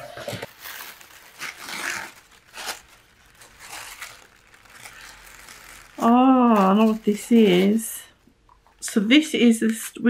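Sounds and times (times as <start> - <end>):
plastic bag rustling: 0.0 - 9.0.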